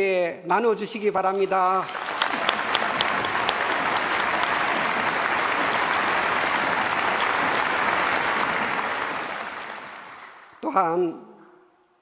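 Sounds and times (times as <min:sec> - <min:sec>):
audience applauding: 0:01.2 - 0:10.8.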